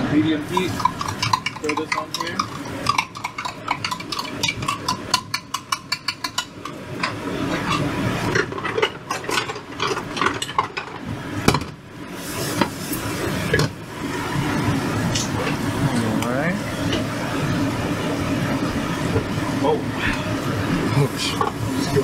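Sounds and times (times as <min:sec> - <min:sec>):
clatter of utensils: 0:00.5 - 0:11.7.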